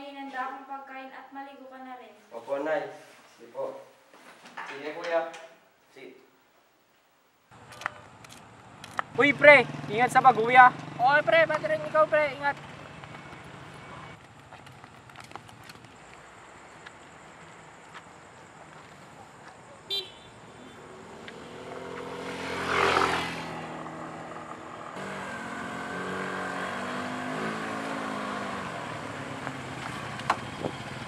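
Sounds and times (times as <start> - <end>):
motorcycle engine: 7.6 - 16.4, 19.9 - 31.0.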